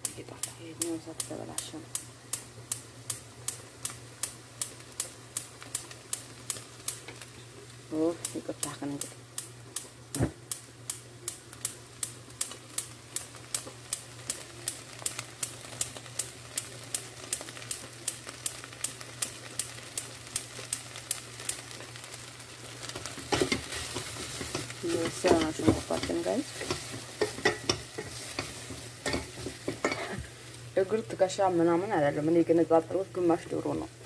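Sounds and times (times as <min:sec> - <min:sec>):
onions sizzling: 0:00.0 - 0:34.0
wooden spoon knocking metal pot: 0:23.3 - 0:30.0.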